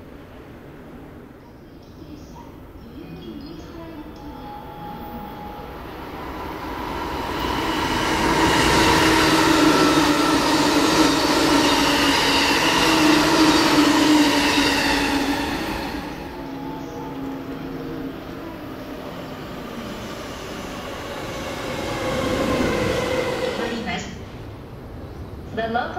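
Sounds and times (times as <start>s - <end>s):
train wheels on rails: 5.7s - 25.6s.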